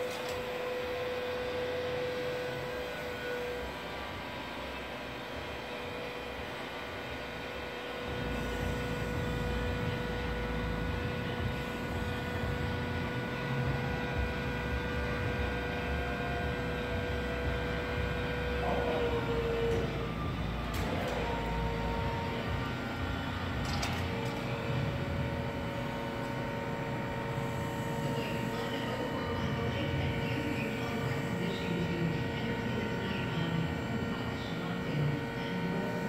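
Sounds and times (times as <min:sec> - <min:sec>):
electric motor whining: 0:00.0 - 0:36.0.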